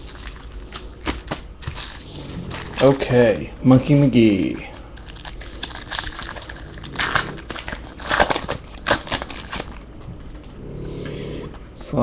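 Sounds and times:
handling of cards: 0:00.0 - 0:03.4, 0:04.0 - 0:10.6
wrapper tearing and crinkling: 0:00.0 - 0:03.4, 0:04.3 - 0:10.3.

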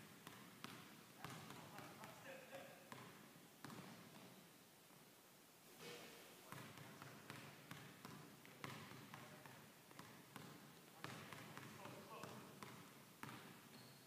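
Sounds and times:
basketball bouncing on hardwood floor: 0:00.0 - 0:01.9, 0:02.9 - 0:04.3, 0:06.5 - 0:13.9.

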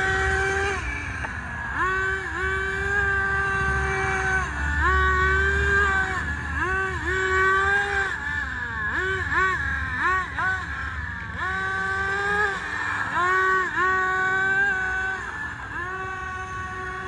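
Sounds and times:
toy car motor whining: 0:00.0 - 0:17.0.

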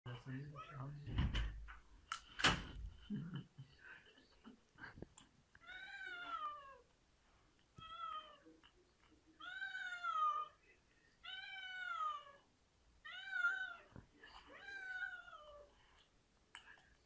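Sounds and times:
cat meowing: 0:09.4 - 0:10.6, 0:11.2 - 0:12.4, 0:13.0 - 0:13.9, 0:14.5 - 0:15.7.

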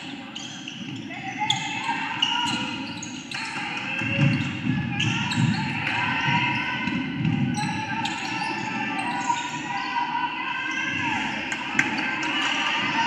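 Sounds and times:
crowd and player voices chattering: 0:00.0 - 0:13.0
basketballs bouncing on wooden court: 0:00.4 - 0:09.6.

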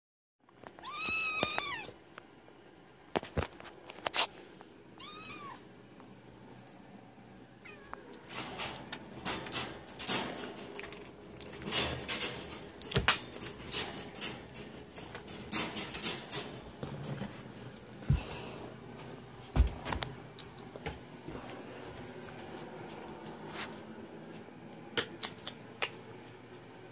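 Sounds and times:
cat meowing: 0:00.8 - 0:02.0, 0:05.0 - 0:05.6, 0:07.6 - 0:08.2
clanks of crate and metal bowl: 0:08.3 - 0:17.1.

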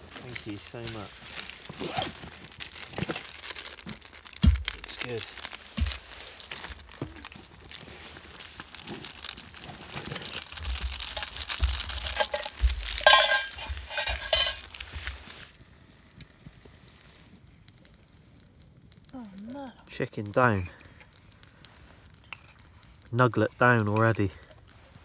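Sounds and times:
metal pot and utensils clinking: 0:11.2 - 0:14.7.

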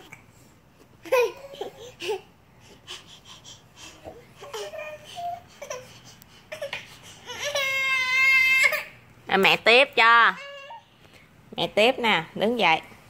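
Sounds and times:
toddler fussing: 0:02.8 - 0:08.8
toddler wailing: 0:06.6 - 0:08.9.

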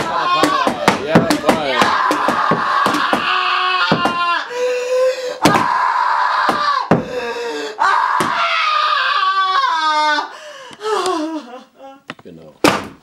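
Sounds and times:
woman screaming: 0:01.8 - 0:04.5, 0:05.4 - 0:10.3.

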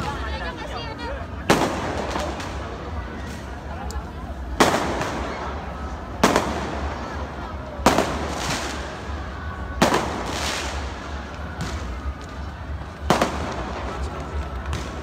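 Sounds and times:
outdoor crowd hubbub: 0:00.0 - 0:15.0
fireworks bangs: 0:01.4 - 0:03.5, 0:04.5 - 0:15.0
faint firework pops: 0:09.8 - 0:15.0.

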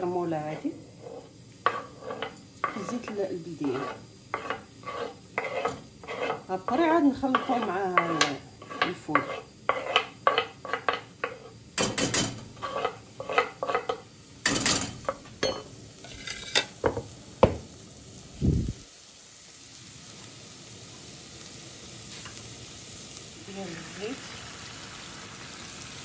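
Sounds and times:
oil sizzling: 0:00.0 - 0:26.0
metal spoon scraping saucepan: 0:00.4 - 0:14.0, 0:14.6 - 0:16.8.

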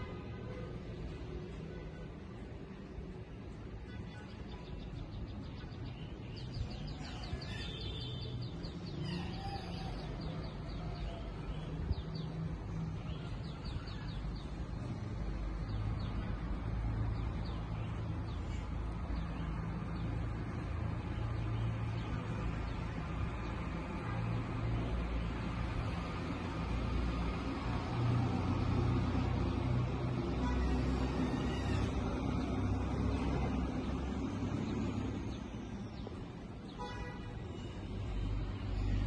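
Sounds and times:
traffic engine hum: 0:00.0 - 0:39.0
small birds chirping: 0:03.3 - 0:27.6.

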